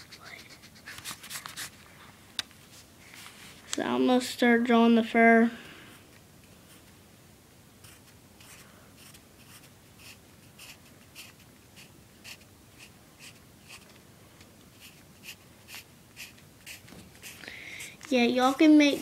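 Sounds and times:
pencil scratching on paper: 0:00.0 - 0:01.7, 0:07.8 - 0:13.9, 0:14.7 - 0:17.4.

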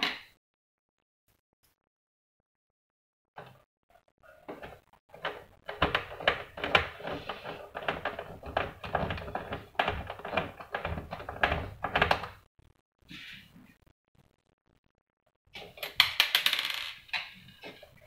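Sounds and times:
plastic parts clicking and rattling: 0:04.5 - 0:12.4.

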